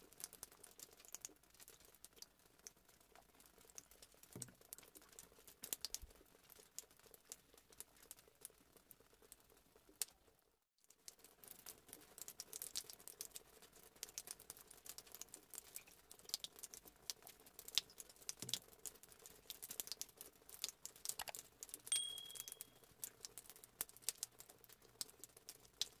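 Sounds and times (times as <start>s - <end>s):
faint crackling and clicking: 0.0s - 21.9s, 22.5s - 26.0s
short high beep: 22.0s - 22.8s.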